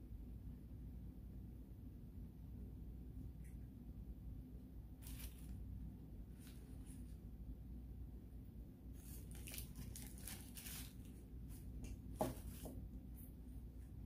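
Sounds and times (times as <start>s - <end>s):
paper wrapper rustling: 5.0s - 5.6s, 9.0s - 12.7s.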